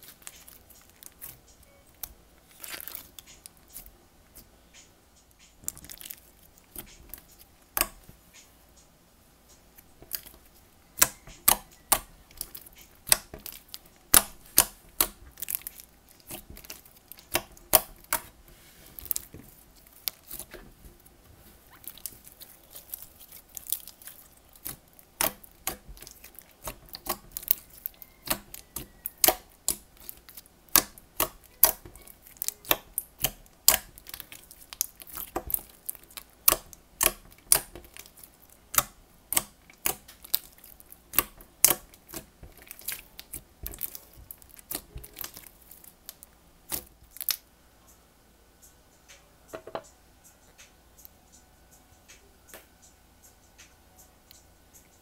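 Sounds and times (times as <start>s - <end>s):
slime clicking and popping: 11.0s - 18.3s, 21.7s - 47.4s.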